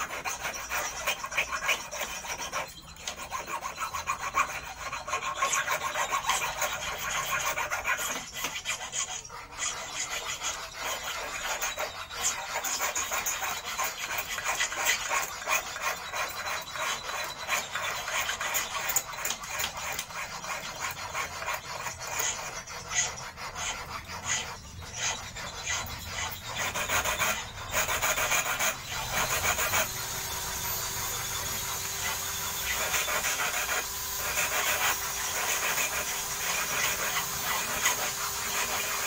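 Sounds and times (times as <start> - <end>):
file rasping on steel wire: 0.0 - 39.0.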